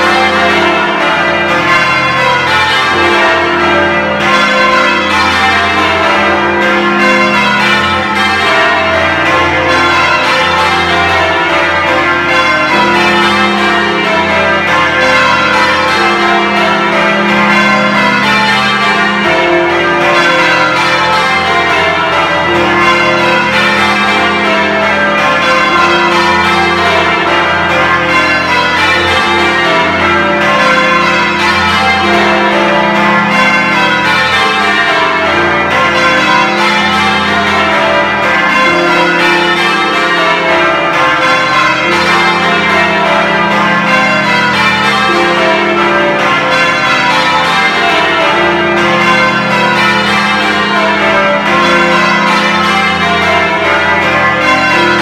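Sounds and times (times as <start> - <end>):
church bells change ringing: 0.0 - 55.0.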